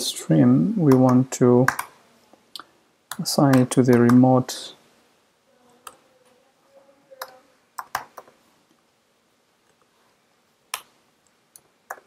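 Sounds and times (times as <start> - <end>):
computer keyboard keystrokes: 0.9 - 1.9, 7.2 - 8.3.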